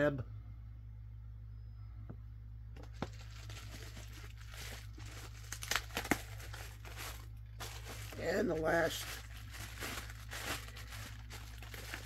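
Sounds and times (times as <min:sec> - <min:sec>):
plastic bag crinkling: 0:02.8 - 0:12.0.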